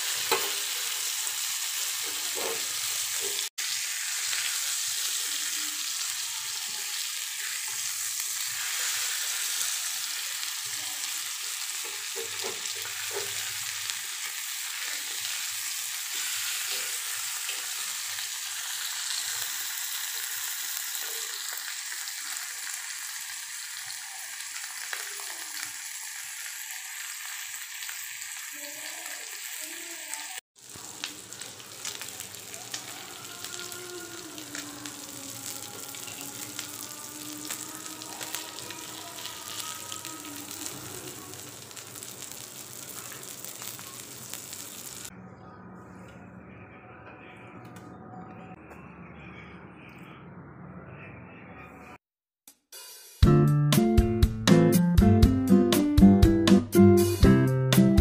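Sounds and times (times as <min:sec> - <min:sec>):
fish sizzling in oil: 0:00.0 - 0:45.1.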